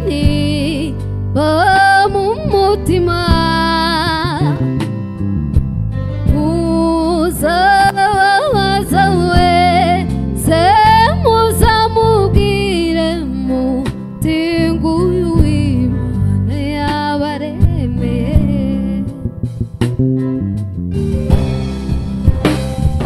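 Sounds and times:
electric bass guitar: 0.0s - 23.0s
sliding lead melody: 0.0s - 23.0s
drum kit with cymbals: 19.5s - 23.0s.

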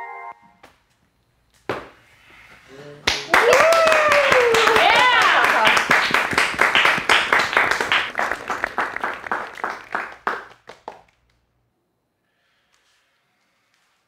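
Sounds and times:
audience clapping: 3.0s - 11.4s.

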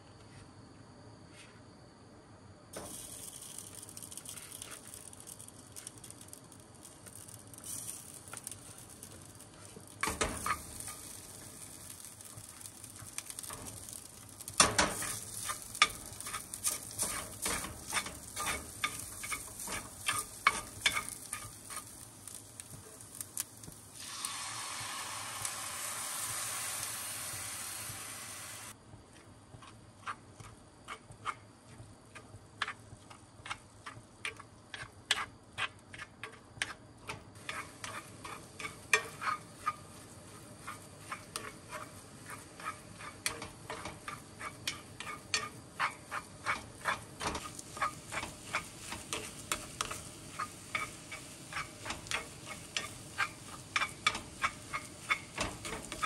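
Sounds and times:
food sizzling in a frying pan: 2.8s - 28.8s, 30.9s - 56.0s
utensil scraping a pan: 7.2s - 23.2s, 29.6s - 56.0s.

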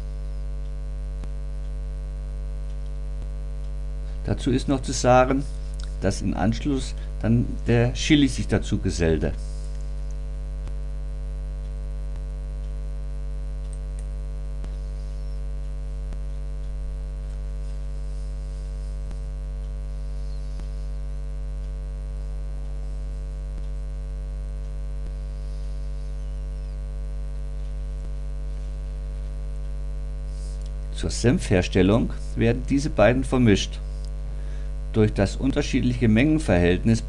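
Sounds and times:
electrical mains hum: 0.0s - 37.0s
faint clicks: 2.6s - 3.8s, 13.6s - 18.0s.

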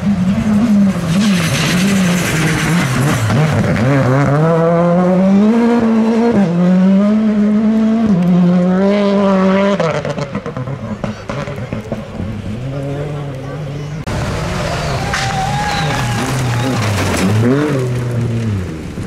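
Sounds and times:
rally car engine revving: 0.0s - 19.0s
gravel hissing under tyres: 1.1s - 3.3s.

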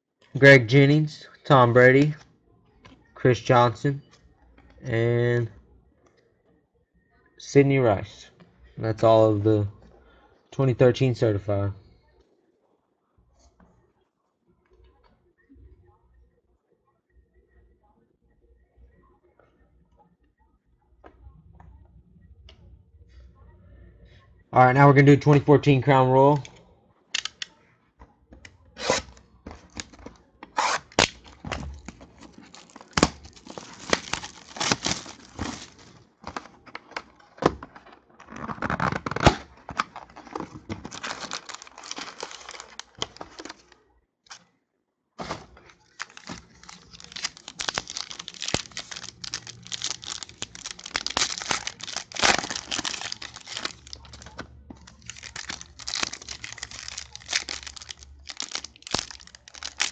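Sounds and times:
plastic wrap tearing and crinkling: 29.7s - 43.8s, 45.2s - 59.9s.

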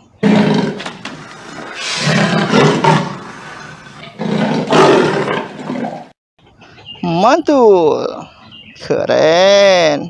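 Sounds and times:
big cat roaring: 0.2s - 6.1s.

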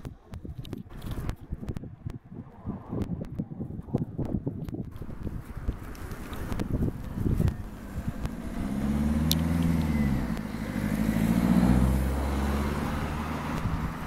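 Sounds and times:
vehicle engine passing: 6.0s - 14.0s.

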